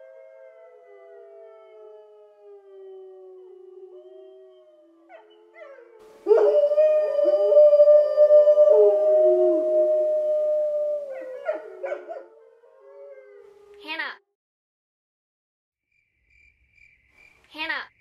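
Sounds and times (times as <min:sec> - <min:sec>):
dogs howling: 0:00.0 - 0:13.8.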